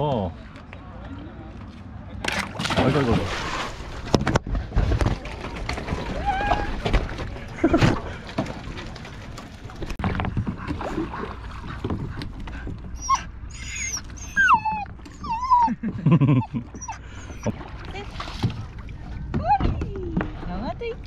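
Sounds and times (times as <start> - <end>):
dog whining: 13.0 - 17.6.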